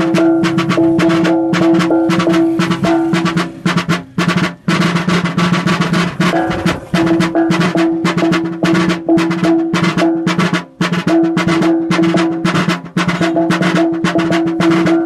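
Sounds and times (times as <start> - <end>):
gong ringing low tone: 0.0 - 3.7, 6.2 - 9.3
drum beaten with sticks: 0.0 - 15.0.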